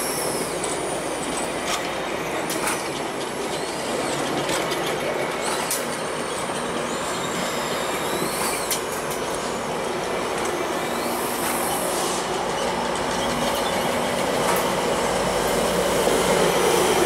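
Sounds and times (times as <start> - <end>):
train coaches rumbling on rails: 0.0 - 17.0
wheel clicks over rail joints: 0.6 - 6.8
high wheel squeal: 3.0 - 9.7.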